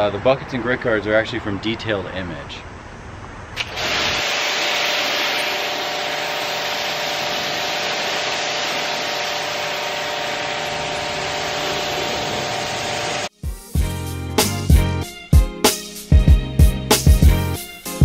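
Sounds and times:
pressure washer motor hum: 3.6 - 13.3
water spraying onto car: 3.6 - 13.3.

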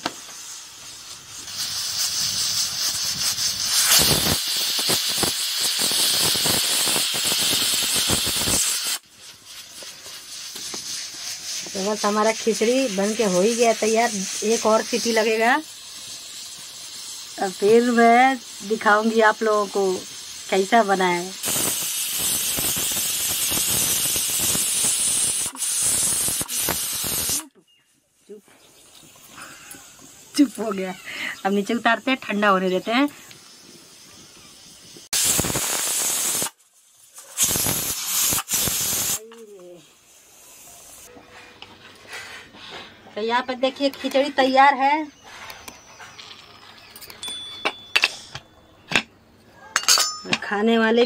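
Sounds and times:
pressure cooker whistle hissing: 0.0 - 9.0, 11.2 - 27.4, 33.1 - 36.6, 37.2 - 39.2
pressure cooker whistle: 3.7 - 9.0.

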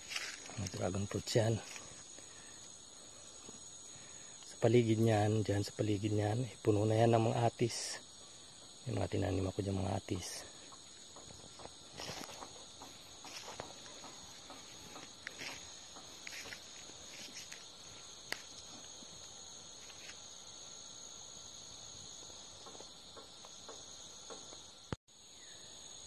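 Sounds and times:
footsteps in dry brush: 0.0 - 2.2, 11.4 - 19.0
insects buzzing: 0.0 - 26.0.

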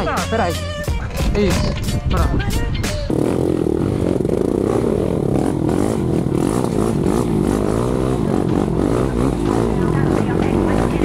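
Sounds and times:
quad engine revving: 3.0 - 11.0.

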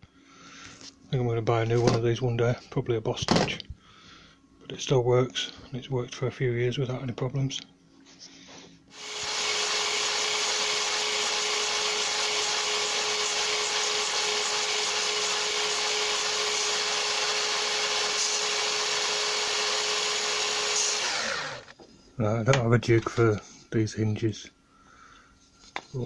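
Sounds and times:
mitre saw whining: 8.9 - 21.7.

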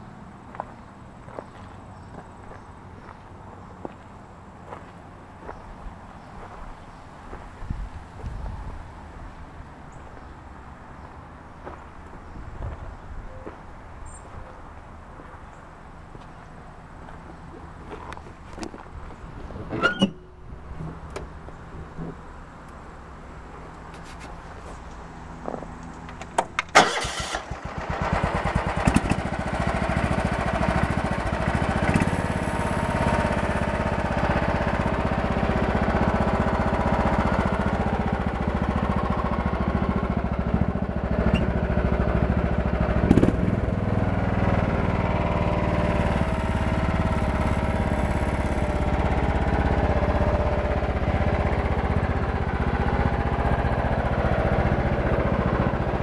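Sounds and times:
lawn tractor engine starting and running: 18.1 - 56.0.

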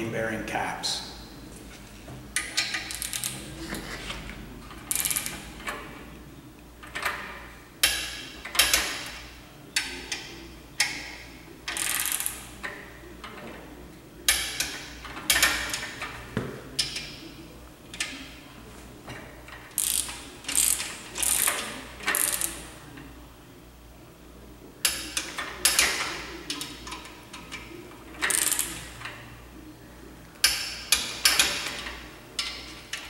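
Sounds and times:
ratchet wrench clicking: 2.4 - 3.4, 4.9 - 5.5, 11.7 - 12.4, 19.7 - 22.6, 28.2 - 28.8.

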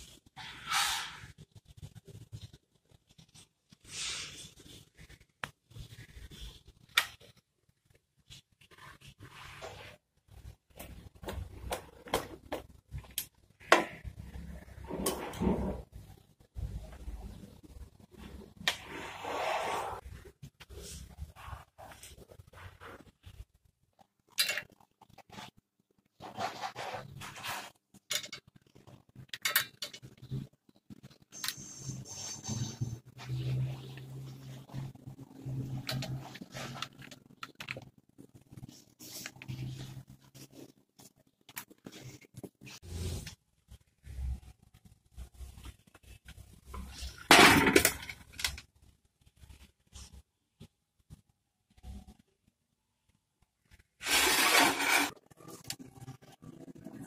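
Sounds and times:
faint clicks and scrapes: 0.0 - 57.0
short sharp scrapes: 0.4 - 1.3, 54.0 - 55.2.

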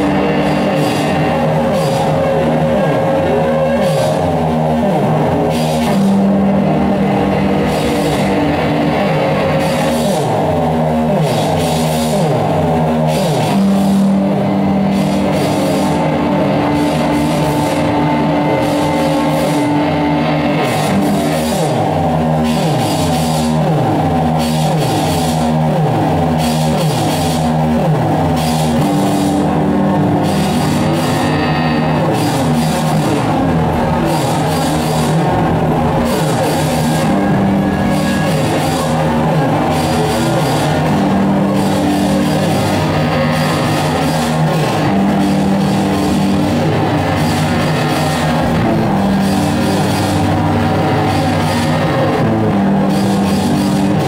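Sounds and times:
distorted noise music: 0.0 - 54.0.

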